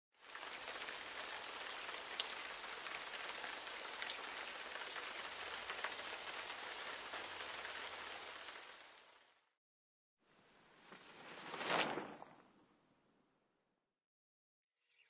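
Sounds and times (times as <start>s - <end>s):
rain hissing: 0.2s - 9.4s.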